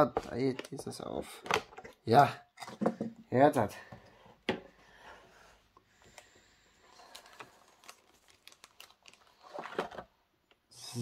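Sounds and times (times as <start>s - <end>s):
plastic packaging crinkling: 6.9s - 10.0s.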